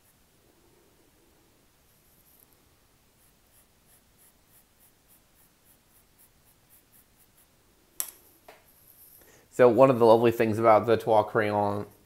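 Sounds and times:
chalk pencil scratching paper: 3.2 - 7.6.

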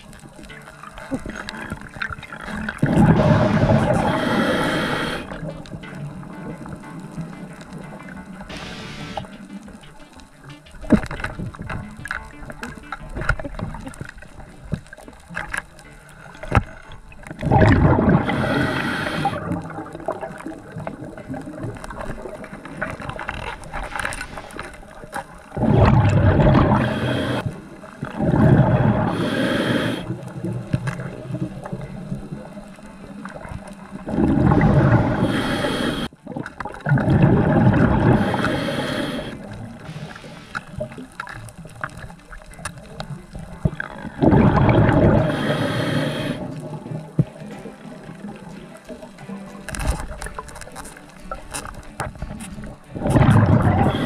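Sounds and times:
steady underwater wash: 0.0 - 54.0
regulator breath and bubbles: 1.0 - 7.0, 16.4 - 32.5, 33.3 - 42.6, 43.4 - 47.4, 51.4 - 54.0.

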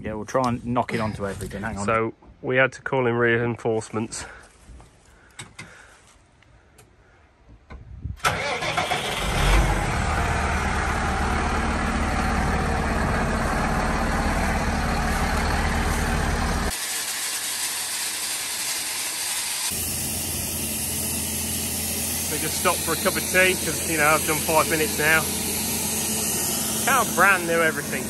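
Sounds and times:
tractor diesel engine starting: 8.2 - 28.0
steady noise: 19.7 - 28.0.

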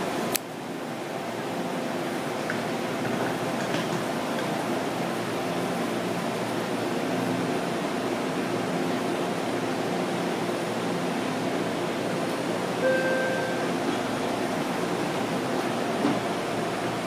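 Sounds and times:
train and ventilation hum: 0.0 - 17.0
door warning tone: 12.8 - 13.8.

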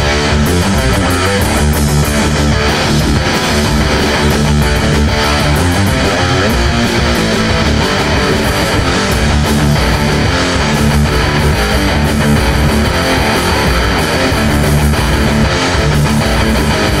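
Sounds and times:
rock music with electric guitar riff: 0.0 - 17.0.

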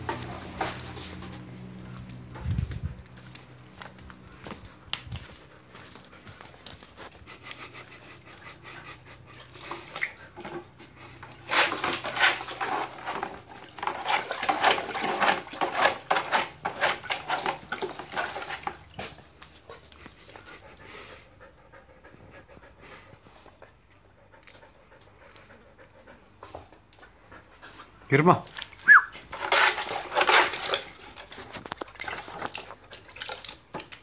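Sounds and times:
dog panting: 4.2 - 12.8, 19.5 - 28.1.

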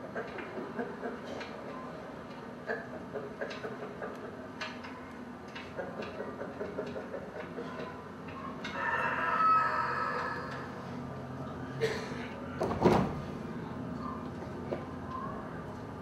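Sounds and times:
rooster-like crowing call: 8.6 - 10.8.

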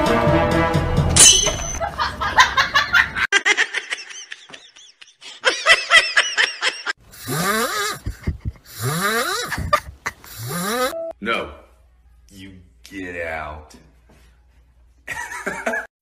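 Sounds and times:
people laughing: 1.8 - 7.0, 7.8 - 10.4, 15.1 - 15.9.

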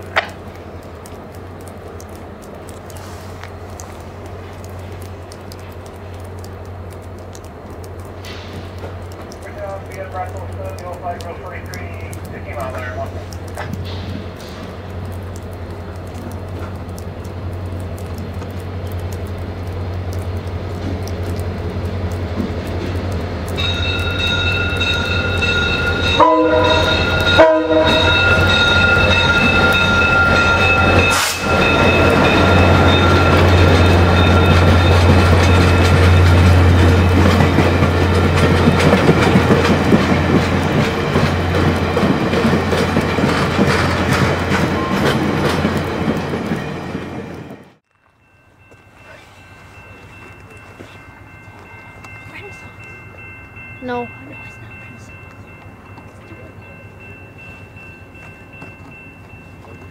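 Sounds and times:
diesel locomotive engine drone: 0.0 - 59.9
train wheels clattering on rails: 4.3 - 47.8, 50.1 - 59.9
steady high tone: 23.6 - 38.1.

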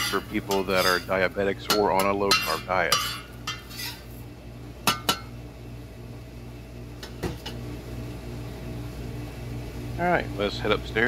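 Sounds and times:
metal spatula clinking on steel: 0.0 - 4.0
low steady hum: 0.0 - 11.0.

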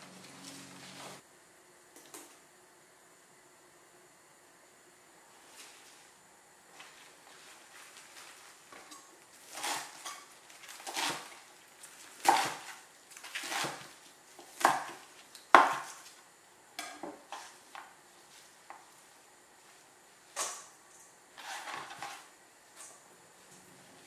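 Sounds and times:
knife chopping on wooden board: 9.5 - 11.4, 12.2 - 16.0.

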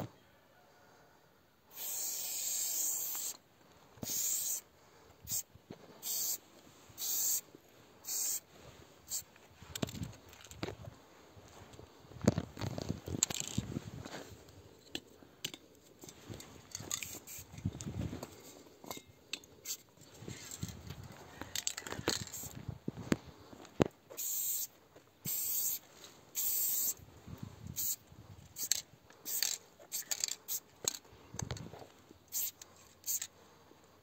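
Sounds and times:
spray-paint can hissing: 1.7 - 3.4, 4.0 - 4.6, 6.0 - 6.4, 7.0 - 7.4, 8.0 - 8.4, 17.1 - 17.5, 24.2 - 25.8, 26.4 - 27.0, 27.8 - 28.0, 28.6 - 30.6, 32.3 - 33.2.

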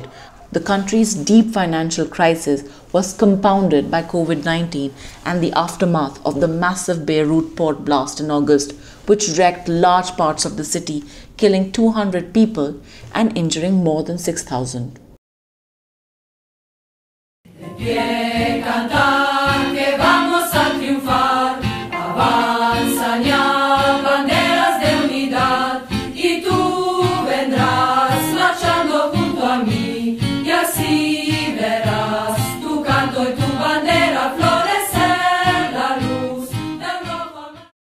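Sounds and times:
choir singing marching song: 17.5 - 37.7
music with steady beat: 17.6 - 37.2.

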